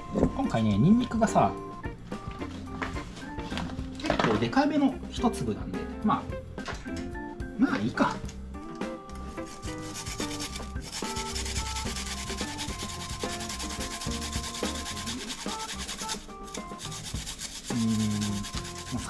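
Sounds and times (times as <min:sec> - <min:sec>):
garlic grating rasp: 0:09.3 - 0:19.0.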